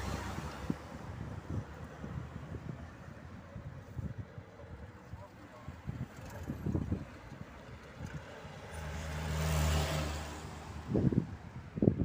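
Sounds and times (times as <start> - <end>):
wind buffeting microphone: 0.0 - 8.7, 10.6 - 12.0
car driving past: 8.6 - 11.2.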